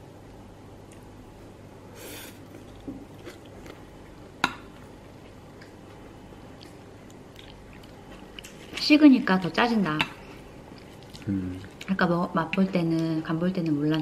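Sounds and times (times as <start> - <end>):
soft chewing: 2.2 - 8.9, 10.0 - 14.0.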